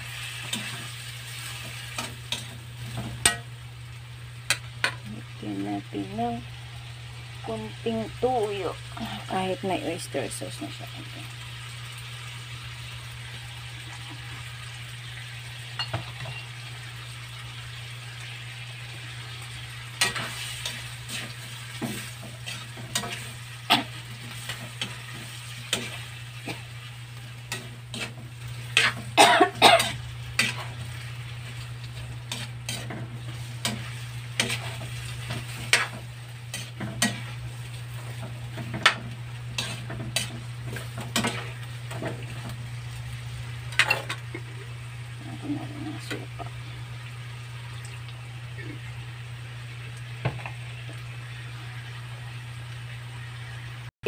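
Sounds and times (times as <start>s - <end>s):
sauce sizzling: 0.0s - 53.9s
metal spatula scraping a wok: 20.0s - 26.6s, 27.5s - 29.1s, 29.8s - 30.8s, 32.2s - 42.4s.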